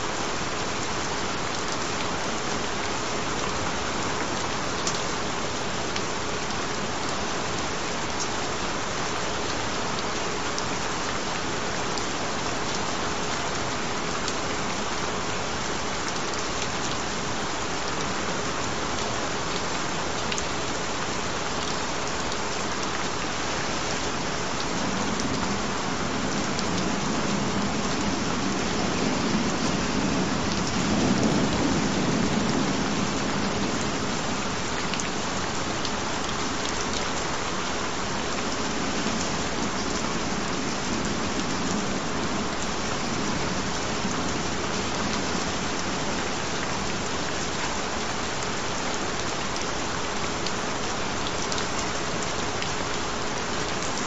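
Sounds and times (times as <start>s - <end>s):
steady rain falling: 0.0s - 54.0s
low rumble of thunder: 24.7s - 34.9s.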